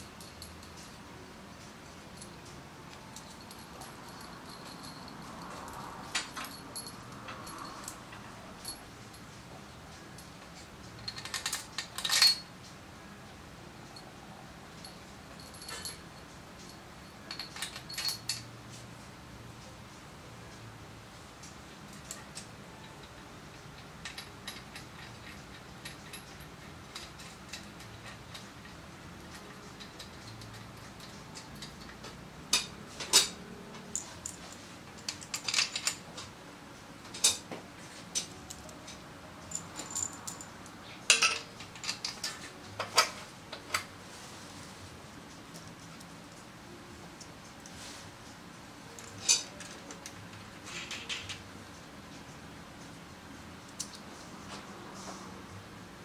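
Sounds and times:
metal tools clinking on metal: 0.0s - 1.2s, 2.0s - 9.3s, 9.9s - 12.6s, 14.8s - 18.7s, 21.9s - 36.3s, 38.1s - 43.9s, 48.9s - 51.4s.

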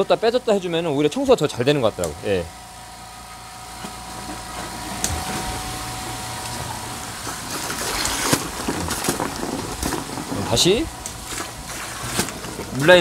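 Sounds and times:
water and air sputtering from hose: 3.2s - 13.0s.

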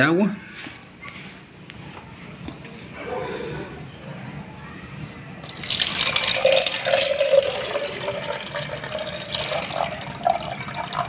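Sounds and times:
water pouring into glass jar: 5.4s - 11.0s.

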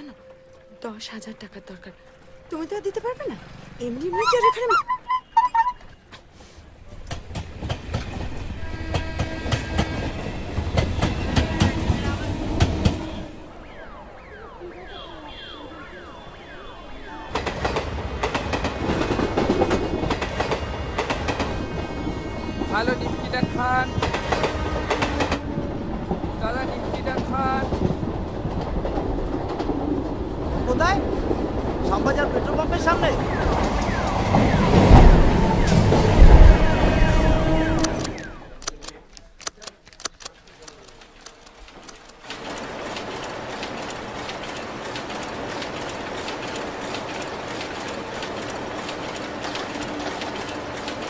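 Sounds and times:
train wheels clattering on rails: 6.9s - 13.2s, 17.3s - 38.3s, 40.6s - 51.0s.

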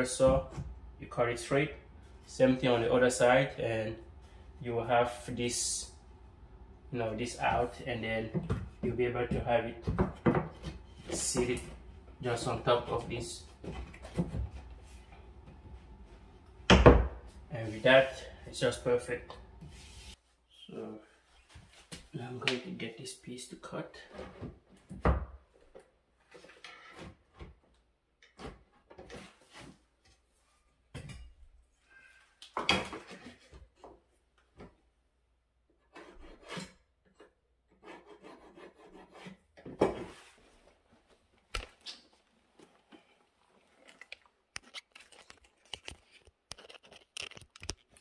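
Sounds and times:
wood scraping on wood: 35.8s - 40.6s.

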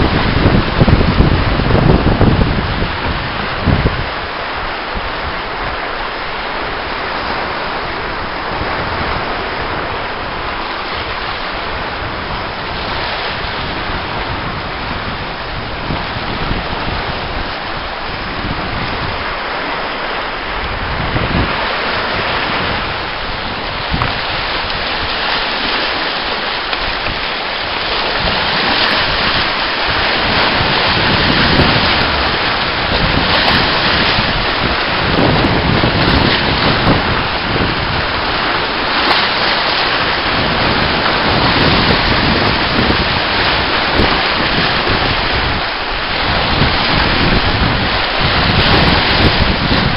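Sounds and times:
sea breaking against rocky shore: 0.0s - 49.9s
wind buffeting microphone: 0.0s - 49.9s.

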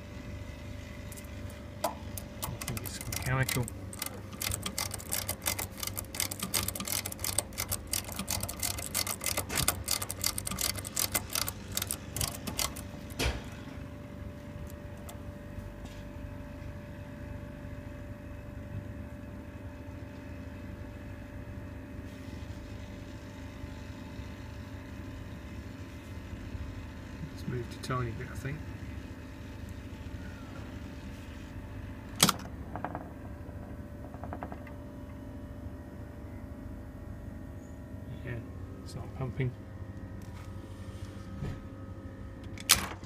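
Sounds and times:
compressor humming: 0.0s - 43.0s
rapid irregular clicking and rattling: 1.1s - 13.5s.

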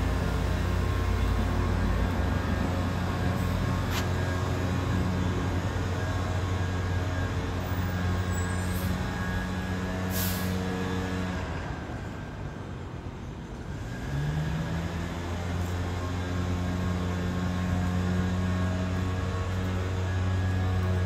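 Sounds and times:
engine humming: 0.0s - 8.4s.

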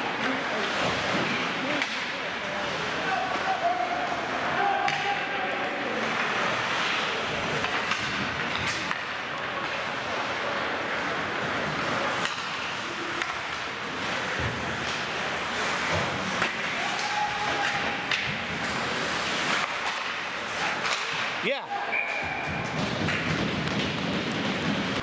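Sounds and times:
sticks and puck knocking boards: 15.8s - 18.7s, 22.5s - 25.0s.

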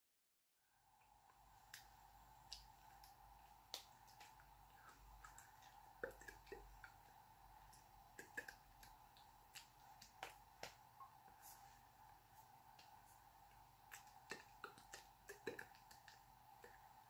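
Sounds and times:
faint steady hum: 0.6s - 17.0s
hands and clothing rustling: 8.8s - 16.9s.

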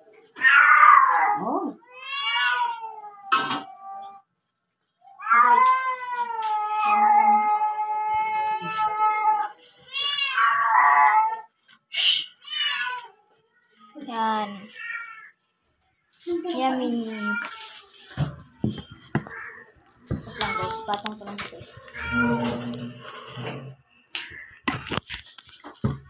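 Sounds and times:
cat yowling: 0.4s - 4.2s, 5.2s - 11.5s, 21.8s - 22.7s.

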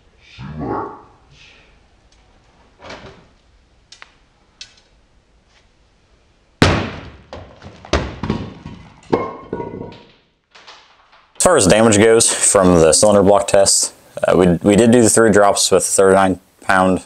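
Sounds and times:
concrete block slamming onto plastic lid: 6.6s - 10.1s
smaller knocks: 6.6s - 10.9s.

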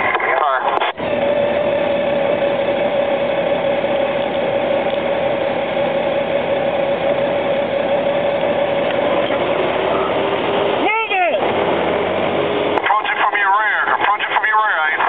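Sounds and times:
mid-pitched whine: 0.0s - 15.0s
road and wind noise: 0.0s - 15.0s
motorcycle engine running: 1.0s - 12.8s.

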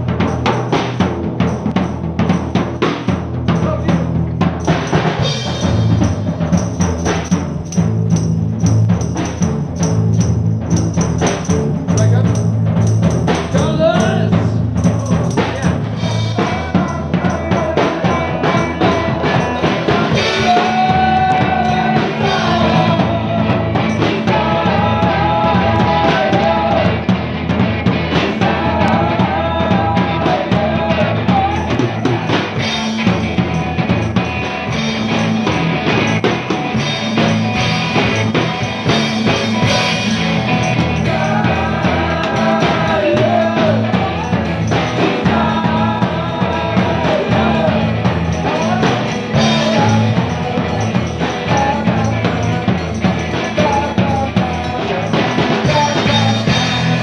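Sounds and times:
bass guitar: 0.0s - 57.0s
drum kit: 0.0s - 57.0s
electric guitar: 0.0s - 57.0s
person singing lead vocal: 13.3s - 33.9s, 38.0s - 57.0s.

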